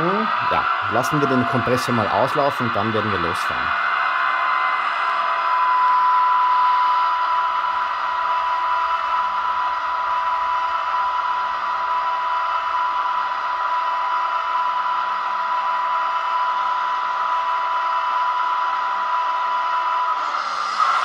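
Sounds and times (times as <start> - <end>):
air compressor hiss: 20.2 - 21.0.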